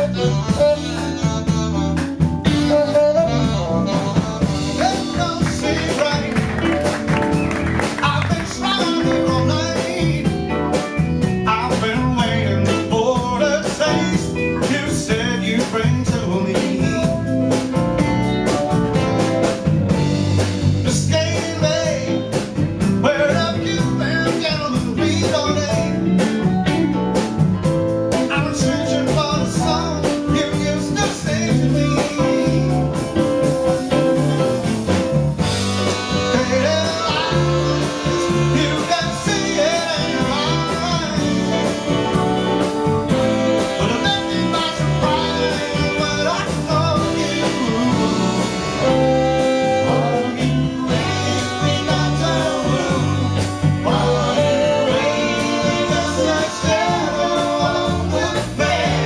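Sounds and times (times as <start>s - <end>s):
male lead vocal: 0.0s - 7.2s, 7.8s - 10.8s, 11.4s - 17.8s, 20.7s - 26.4s, 28.1s - 33.3s, 35.7s - 59.0s
live jazz-rock band: 0.0s - 59.0s.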